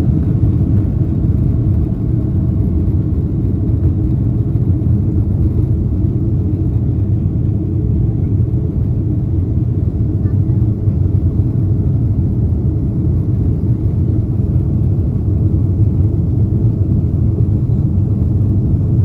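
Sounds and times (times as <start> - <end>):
jet engines rumbling: 0.0 - 19.0.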